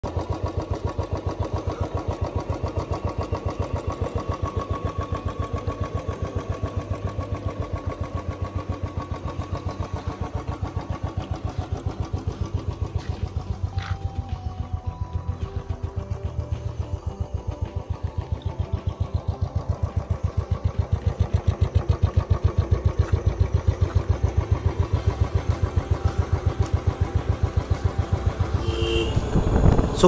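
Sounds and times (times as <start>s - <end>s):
motorcycle engine idling: 0.0s - 30.0s.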